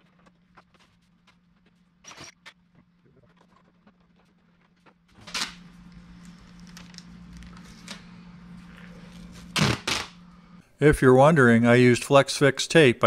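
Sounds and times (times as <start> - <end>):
steady low hum: 0.0 - 12.8
duct tape pulled off roll: 9.5 - 10.2.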